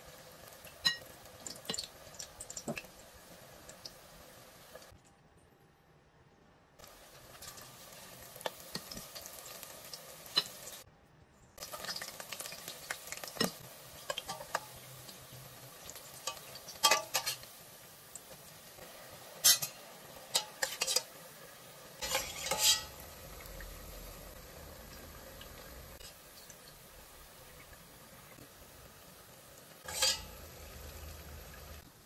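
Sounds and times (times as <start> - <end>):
food deep-frying in hot oil: 0.0 - 5.0, 6.8 - 10.9, 11.6 - 32.0
metal spatula clinking on pot: 0.8 - 1.1, 16.2 - 17.5, 19.4 - 21.1, 22.0 - 23.0, 29.8 - 30.4.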